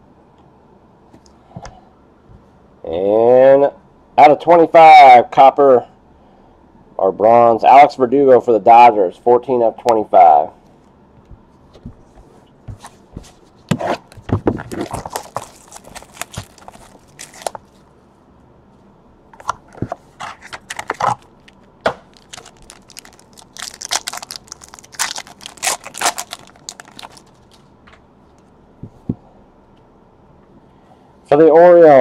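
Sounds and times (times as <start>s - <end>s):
cardboard handled: 11.3s - 17.8s, 19.4s - 21.3s
plastic wrapper tearing and crinkling: 14.6s - 17.8s, 20.3s - 27.7s.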